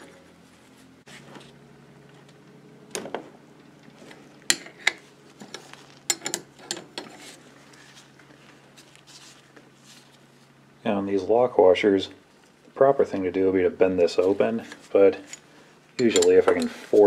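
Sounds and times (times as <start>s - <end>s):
low steady hum: 0.0s - 17.0s
wrench clinking on bolts: 16.0s - 16.8s.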